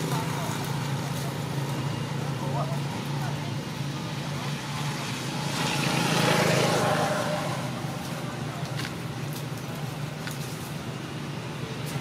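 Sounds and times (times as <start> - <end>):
vehicle passing: 2.2 - 10.2.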